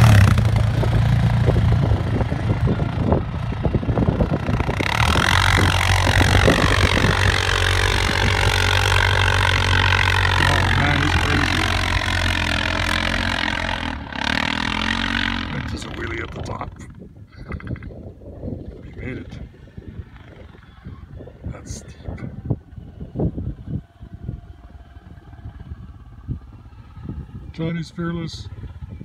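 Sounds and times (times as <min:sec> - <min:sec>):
quad engine revving: 0:00.0 - 0:17.8.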